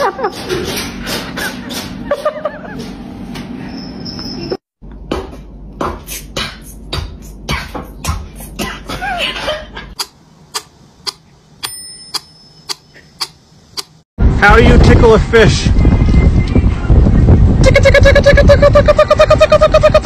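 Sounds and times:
steady clicking beat: 10.0 - 11.2
bell-like ding: 11.6 - 12.7.

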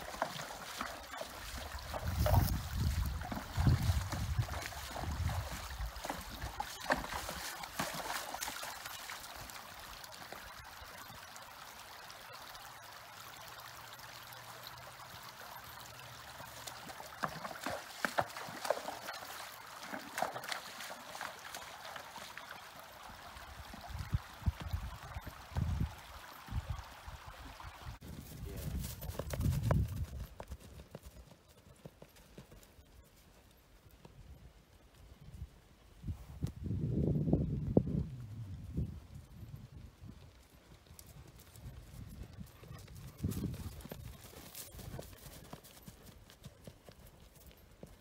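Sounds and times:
running water: 0.0 - 30.1
hooves splashing on stones: 0.0 - 34.4, 38.8 - 48.0.

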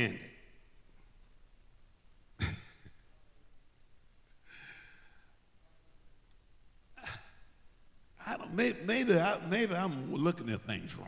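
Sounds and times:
breathing into a microphone: 4.4 - 5.4.

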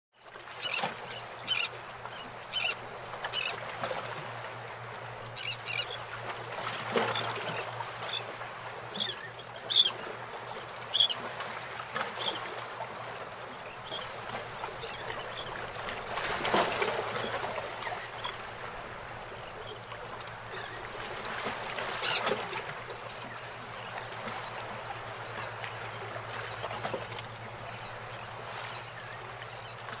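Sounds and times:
birds chirping: 17.1 - 29.9.

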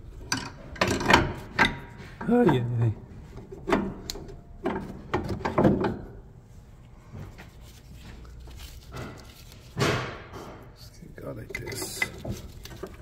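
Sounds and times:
metal knocks and scraping: 0.0 - 6.3, 7.0 - 13.0
metal parts clunking: 0.2 - 6.2, 8.7 - 13.0.

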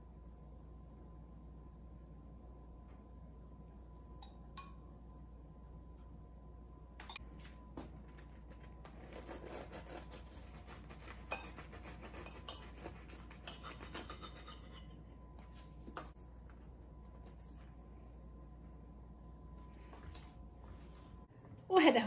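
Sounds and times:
knife cutting crusty bread: 8.0 - 15.0.

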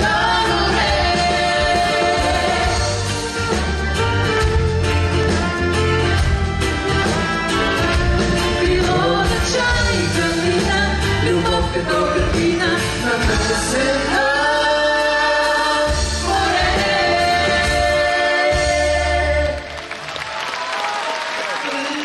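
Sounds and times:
woman and man singing duet: 0.0 - 3.1, 8.5 - 19.8
live band playing: 0.0 - 20.8.

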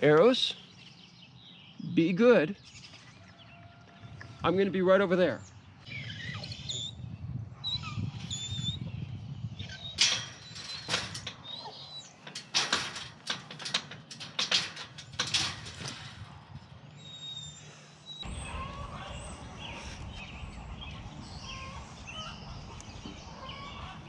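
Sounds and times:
wire-mesh gate rattling: 9.6 - 16.9.

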